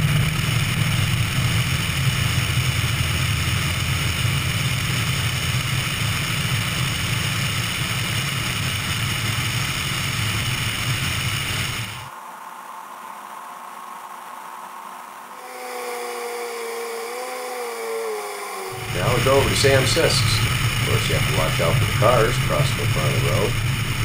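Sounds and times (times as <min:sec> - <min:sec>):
small plane engine and propeller: 0:00.0 - 0:12.1, 0:15.3 - 0:24.0.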